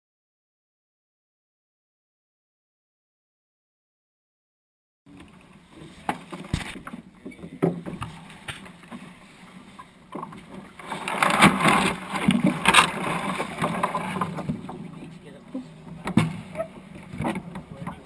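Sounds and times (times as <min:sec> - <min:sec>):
rough rushing and scraping: 0:10.7 - 0:16.6
knocks and clicks on wooden hull: 0:15.5 - 0:18.0.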